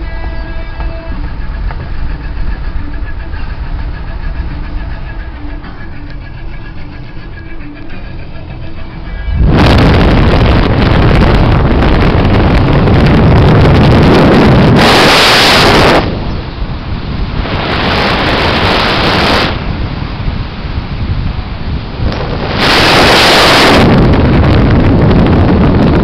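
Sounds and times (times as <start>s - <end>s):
wind buffeting microphone: 9.3s - 26.0s.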